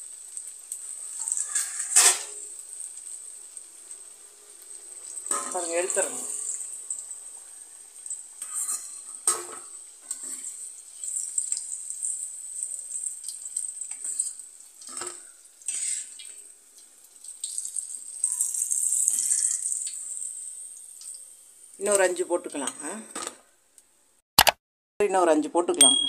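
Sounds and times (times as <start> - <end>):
dumplings sizzling in oil: 0.0 - 23.8
ladle scraping and knocking pan: 8.4 - 10.5.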